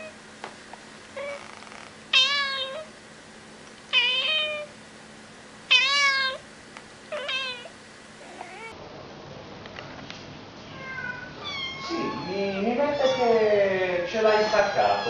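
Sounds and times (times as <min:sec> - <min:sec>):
cat meowing: 0:01.2 - 0:02.9, 0:03.9 - 0:04.7, 0:05.7 - 0:06.4, 0:07.1 - 0:08.8, 0:10.7 - 0:15.0.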